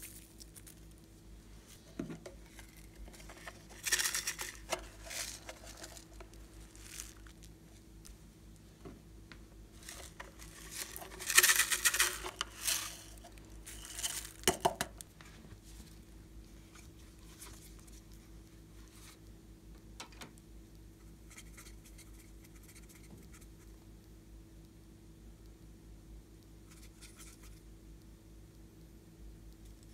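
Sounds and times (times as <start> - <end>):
foam beads pattering onto slime: 0.0 - 1.1, 2.4 - 7.7, 9.8 - 15.1.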